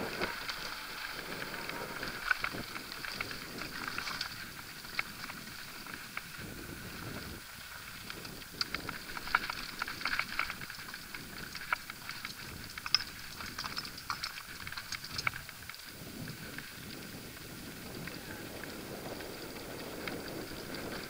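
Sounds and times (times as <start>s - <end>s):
rush of riding noise: 0.0s - 21.0s
bike clattering: 8.1s - 15.8s
tyres crunching on loose rock: 8.1s - 15.8s.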